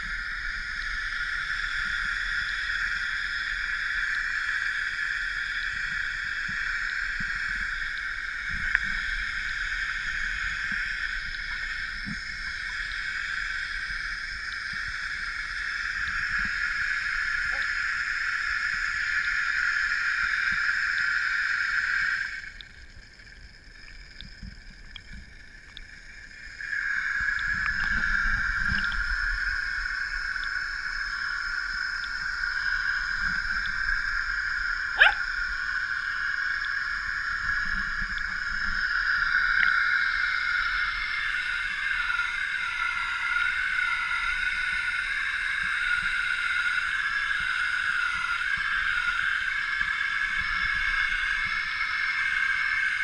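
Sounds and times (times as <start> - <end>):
high-pitched drone: 35.0 - 35.3.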